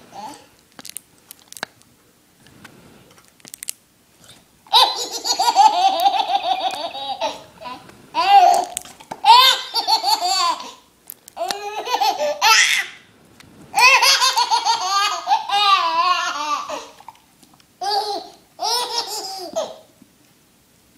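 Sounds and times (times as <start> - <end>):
baby laughing: 4.7 - 10.8, 11.4 - 13.0, 13.8 - 17.0, 17.8 - 19.9.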